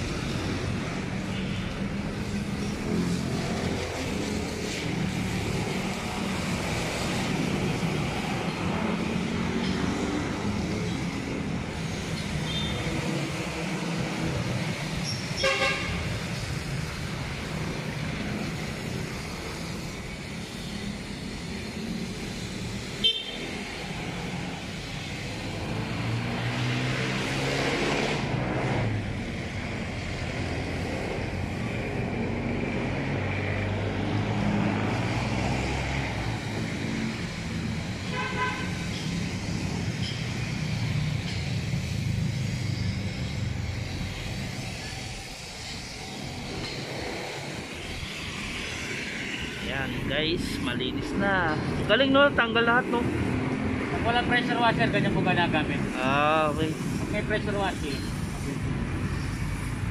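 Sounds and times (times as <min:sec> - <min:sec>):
street traffic engines: 0:00.0 - 0:59.9
car horn: 0:15.4 - 0:16.1, 0:23.0 - 0:23.5, 0:38.1 - 0:38.9.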